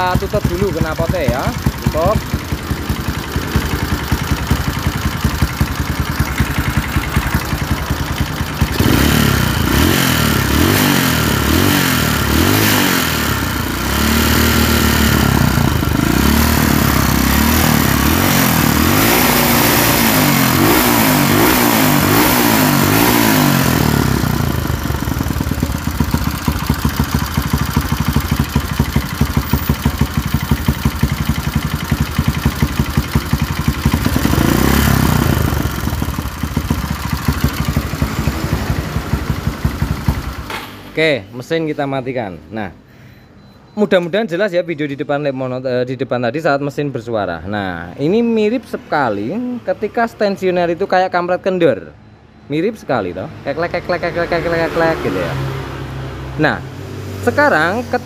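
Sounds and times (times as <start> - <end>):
motorcycle engine revving: 0.0 - 41.0, 53.4 - 58.0.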